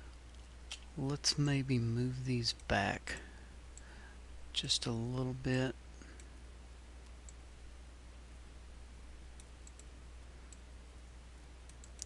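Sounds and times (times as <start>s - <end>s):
steady low hum: 0.0s - 12.0s
computer mouse clicks: 9.4s - 9.9s, 11.7s - 12.0s.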